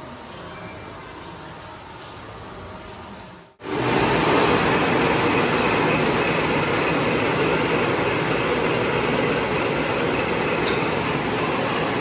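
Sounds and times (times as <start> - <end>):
machinery whirring and rattling: 3.6 - 12.0.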